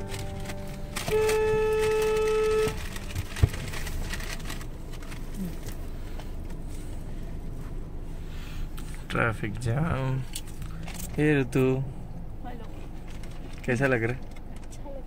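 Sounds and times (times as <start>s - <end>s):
vehicle horn blast: 0.0s - 3.2s
traffic noise: 0.0s - 15.0s.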